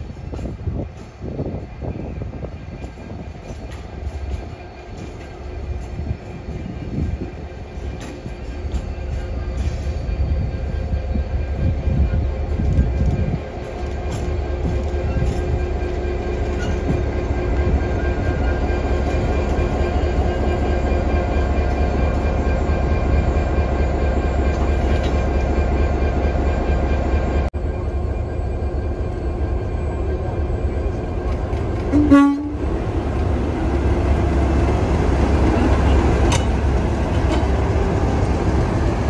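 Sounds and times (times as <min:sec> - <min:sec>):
diesel locomotive engines idling: 0:00.0 - 0:39.0
diesel horn toot: 0:31.9 - 0:32.7.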